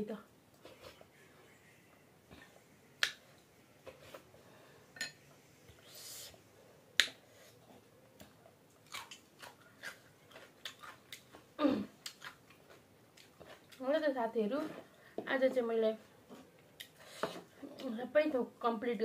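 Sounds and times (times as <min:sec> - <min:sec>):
wet chewing: 0:08.2 - 0:13.8.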